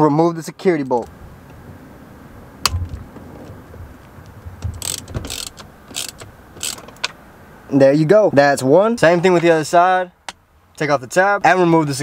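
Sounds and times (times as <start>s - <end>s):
ratchet clicking: 4.8s - 7.1s.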